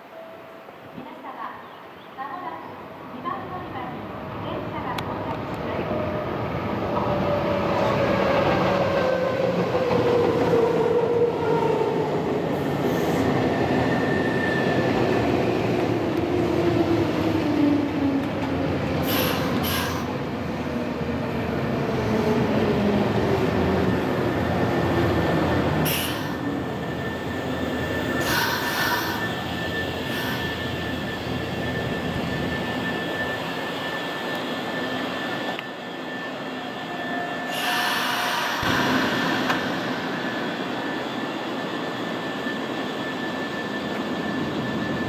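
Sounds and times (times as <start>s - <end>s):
high brake squeal: 25.9s - 45.0s.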